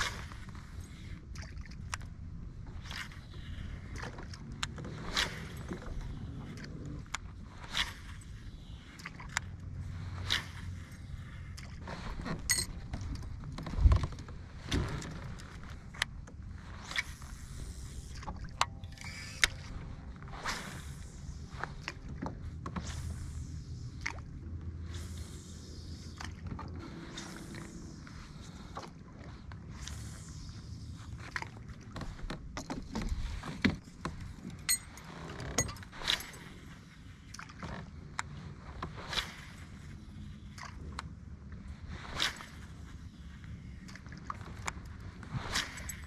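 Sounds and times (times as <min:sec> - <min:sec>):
low rumble: 0:00.0 - 0:32.5.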